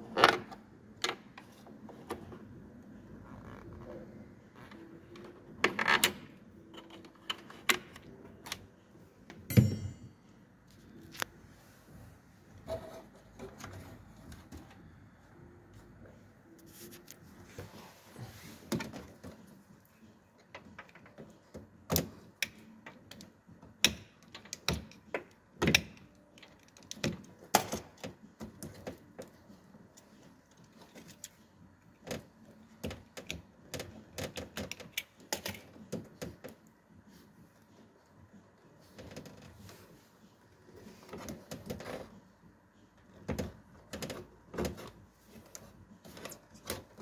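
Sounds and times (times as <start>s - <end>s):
plastic and rubber clicks and knocks: 32.0s - 36.7s.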